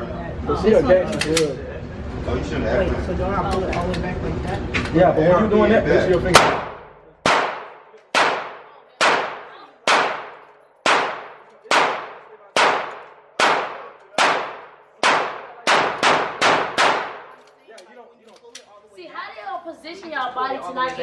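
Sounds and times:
pistol shots echoing indoors: 0:06.3 - 0:17.4.

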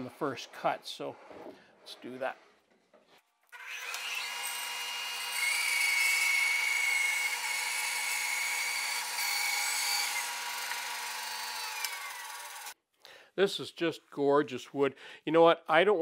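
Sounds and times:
bandsaw running: 0:03.6 - 0:12.8
saw blade cutting log: 0:03.6 - 0:12.8.

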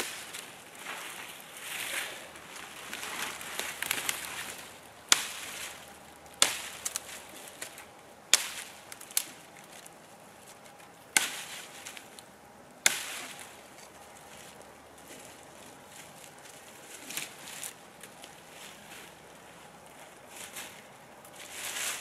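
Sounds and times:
dry branches rustling: 0:00.0 - 0:22.0
knife chopping branches: 0:01.8 - 0:19.2.

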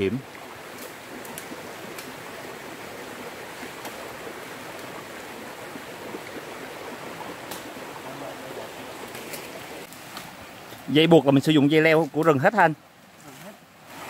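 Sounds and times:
stream rushing: 0:00.0 - 0:14.0
faint sharp clicks: 0:07.4 - 0:07.7.

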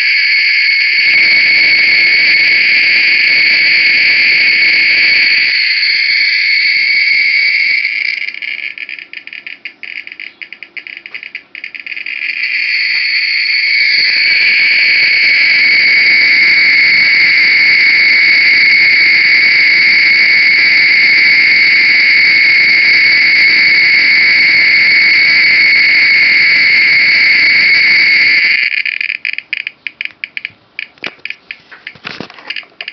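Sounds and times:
geiger counter clicking: 0:07.5 - 0:16.3, 0:28.4 - 0:32.9.

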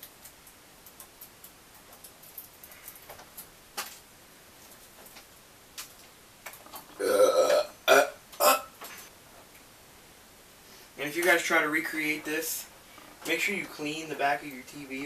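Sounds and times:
person throat sound: 0:07.0 - 0:08.7.

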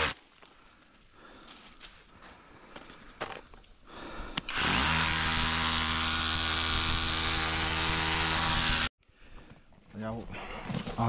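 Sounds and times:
power tool motor whining: 0:04.5 - 0:08.9.

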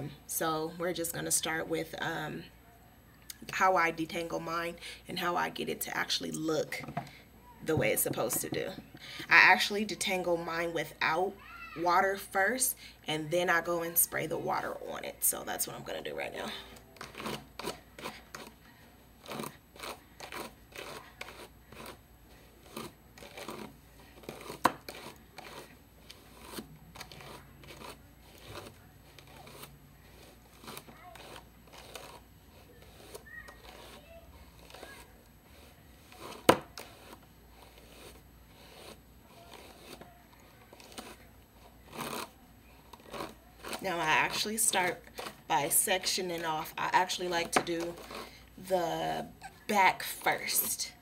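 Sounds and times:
hair rustling and crinkling: 0:15.8 - 0:48.7.

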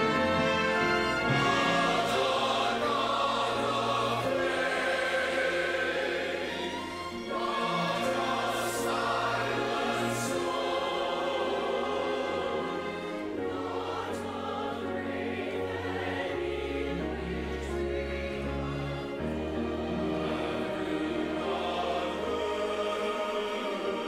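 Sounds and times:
brass accompaniment: 0:00.0 - 0:14.6
choir singing in harmony: 0:00.0 - 0:24.0.

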